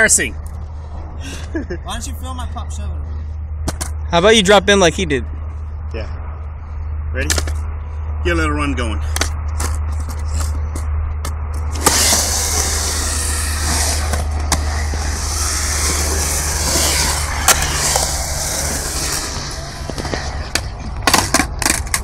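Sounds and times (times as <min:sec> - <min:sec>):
low steady hum: 0:00.0 - 0:22.0
skateboard wheels rolling on concrete: 0:09.2 - 0:22.0.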